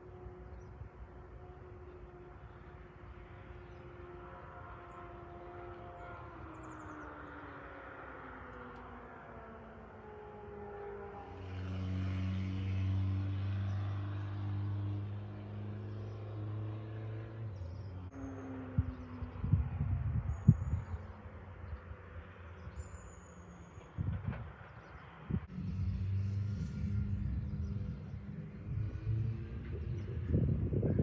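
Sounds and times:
engine droning: 0.0s - 31.0s
low hum: 25.4s - 31.0s.

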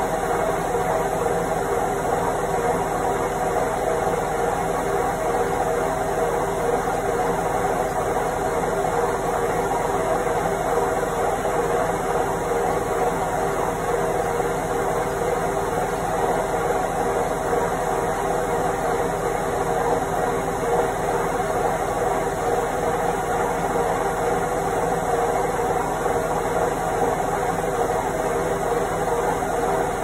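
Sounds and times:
washing machine spinning: 0.0s - 30.0s.

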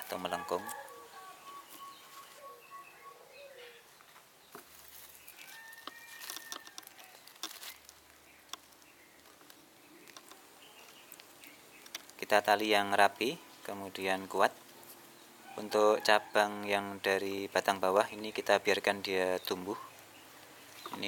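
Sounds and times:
bird calls: 0.0s - 12.8s, 18.0s - 21.0s
plastic tape crinkling: 4.8s - 12.2s.

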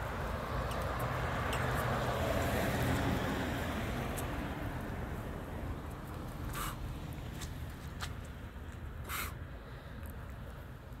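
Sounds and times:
vehicle passing by: 0.0s - 8.0s.

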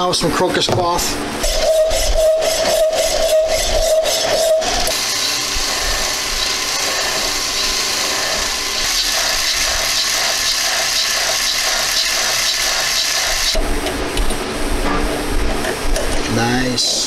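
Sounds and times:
file on spinning metal: 1.4s - 13.6s
abrasive cloth hissing on lathe: 1.6s - 13.5s.

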